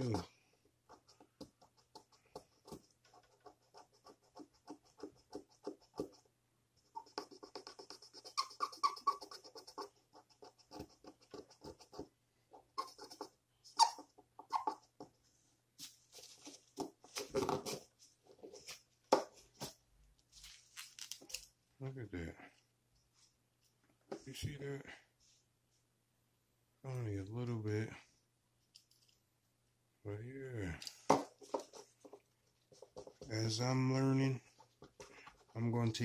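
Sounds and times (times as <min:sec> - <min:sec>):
marker scrubbing on toy car: 0:00.8 - 0:15.1.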